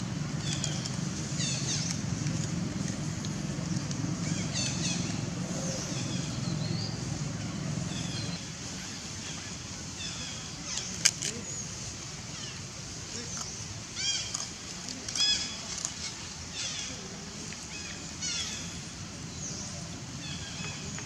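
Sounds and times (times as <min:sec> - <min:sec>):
birds chirping: 0:00.0 - 0:08.4
vehicle engine hum: 0:00.0 - 0:11.6.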